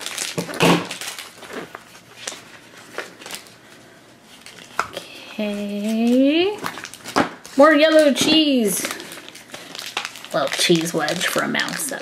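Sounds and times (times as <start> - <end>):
plastic crackling and clicking: 5.8 - 12.0.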